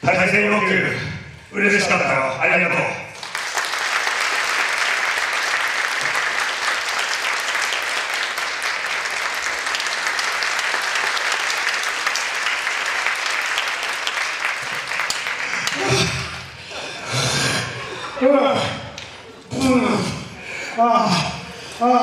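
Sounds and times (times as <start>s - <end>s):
audience applauding: 3.2s - 18.2s.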